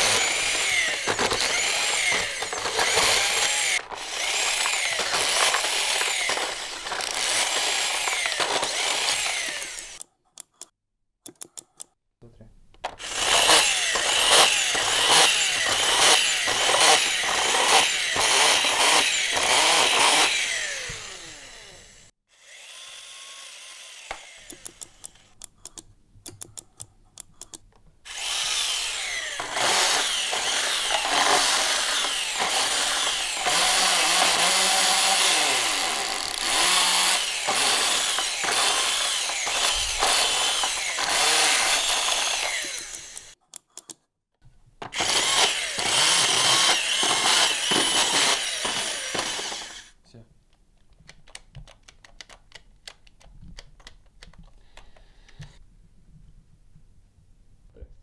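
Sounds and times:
toy screwdriver motor whirring: 0:00.0 - 0:10.7, 0:12.9 - 0:25.8, 0:27.4 - 0:44.0, 0:44.9 - 0:50.0
rapid plastic clicks: 0:50.8 - 0:55.6.

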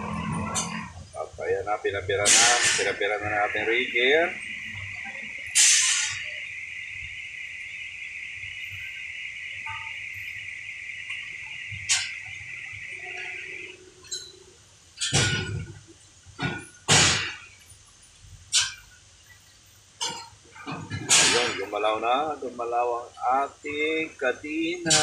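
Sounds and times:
steady high hiss: 0:00.0 - 0:25.0
metal clanks: 0:02.2 - 0:03.0, 0:15.0 - 0:15.8, 0:20.0 - 0:21.7.

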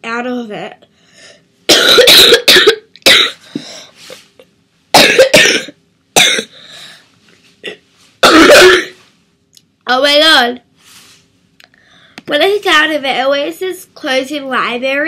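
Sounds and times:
girl coughing: 0:01.7 - 0:03.9, 0:04.9 - 0:06.6, 0:07.6 - 0:09.0.

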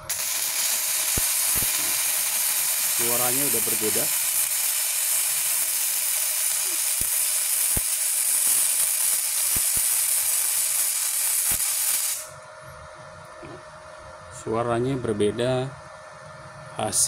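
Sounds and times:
welding arc hissing and popping: 0:00.0 - 0:12.4.

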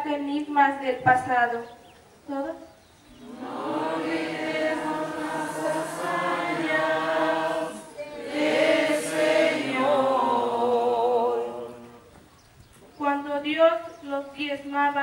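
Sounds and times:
voices singing: 0:03.1 - 0:12.2.

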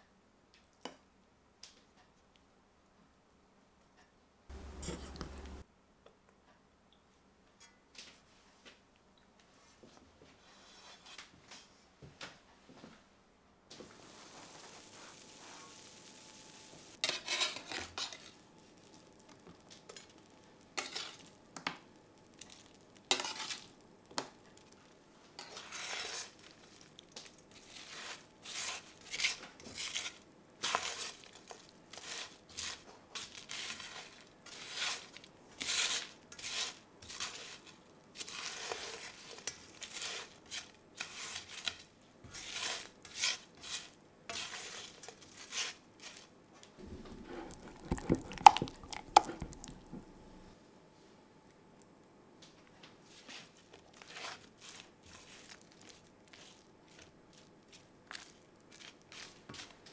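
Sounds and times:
metal tongs scraping a pan: 0:04.5 - 0:05.6, 0:17.0 - 0:18.4, 0:20.8 - 0:21.3, 0:23.1 - 0:23.7, 0:25.4 - 0:26.4, 0:27.6 - 0:46.2.

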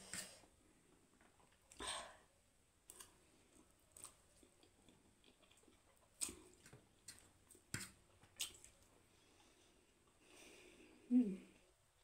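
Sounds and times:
chewing noodles: 0:02.9 - 0:09.6.

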